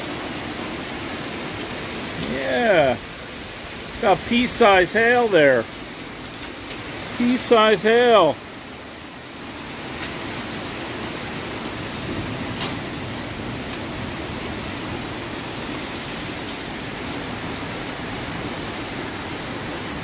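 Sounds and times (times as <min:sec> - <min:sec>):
heavy rain with hail: 0:00.0 - 0:20.0.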